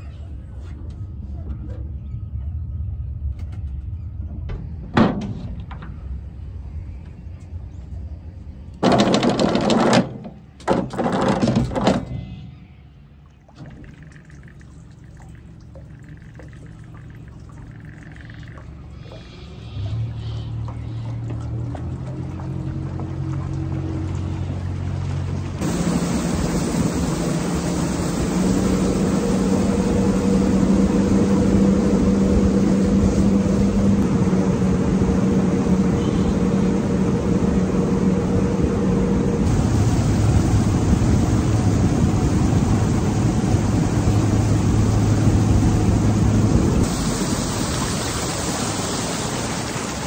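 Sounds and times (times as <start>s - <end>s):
motorboat engine hum: 0.0s - 50.0s
water rushing: 13.4s - 50.0s.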